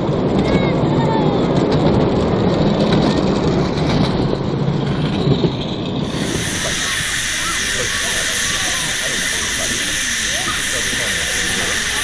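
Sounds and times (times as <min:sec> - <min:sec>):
miniature train rumbling: 0:00.0 - 0:12.0
steam locomotive hiss: 0:06.0 - 0:12.0.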